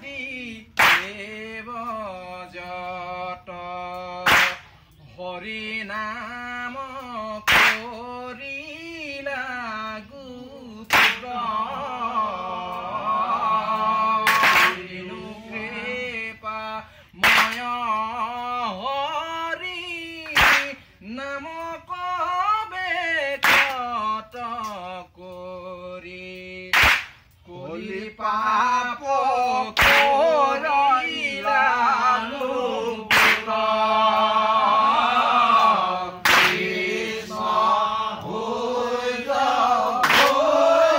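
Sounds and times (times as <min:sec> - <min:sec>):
men chanting in unison: 0:00.0 - 0:26.8, 0:27.4 - 0:40.9
hand clap: 0:00.7 - 0:01.3, 0:04.0 - 0:04.8, 0:07.0 - 0:08.1, 0:10.8 - 0:11.4, 0:13.7 - 0:14.9, 0:17.2 - 0:18.5, 0:20.2 - 0:20.9, 0:23.4 - 0:24.8, 0:26.7 - 0:27.4, 0:29.7 - 0:30.4, 0:32.3 - 0:34.3, 0:35.1 - 0:36.9, 0:39.8 - 0:40.6.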